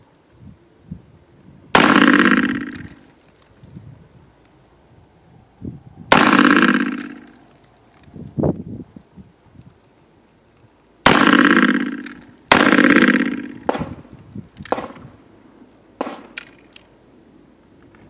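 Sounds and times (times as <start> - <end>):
revolver shots ringing: 1.8 - 3.0.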